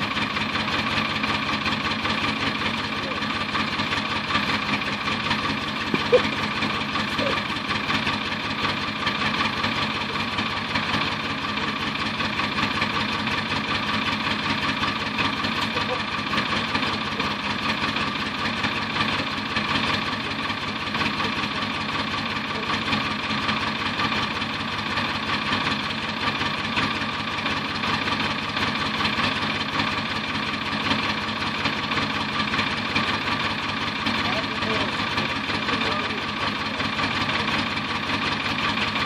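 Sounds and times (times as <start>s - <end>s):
diesel truck engine idling: 0.0s - 39.0s.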